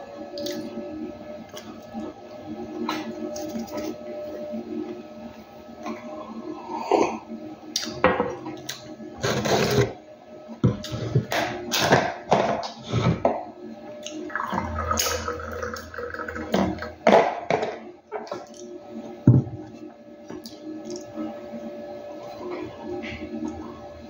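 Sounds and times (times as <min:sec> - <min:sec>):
coffee pouring into glass: 0:14.1 - 0:17.0.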